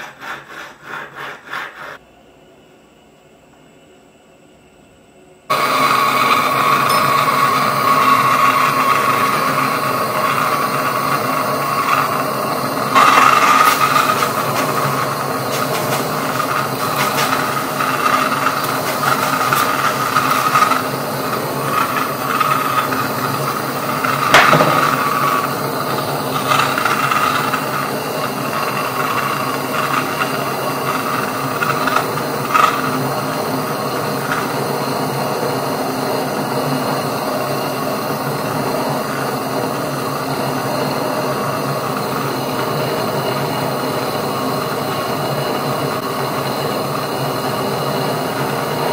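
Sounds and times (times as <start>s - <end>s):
blowtorch flame hissing: 5.5s - 48.9s.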